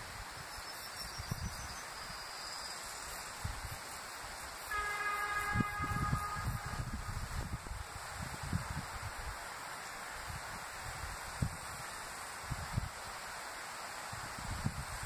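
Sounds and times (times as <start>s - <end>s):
wind noise: 0.0s - 2.2s, 3.1s - 13.3s, 14.0s - 15.0s
train horn: 4.6s - 7.8s.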